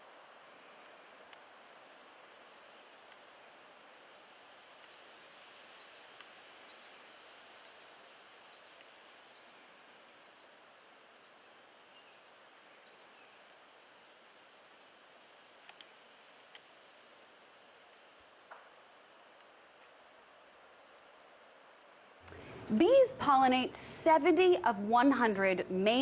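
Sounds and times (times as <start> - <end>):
soft steady hiss: 0.0 - 26.0
small bird chirping: 5.8 - 7.0
sharp clicks: 15.6 - 15.9.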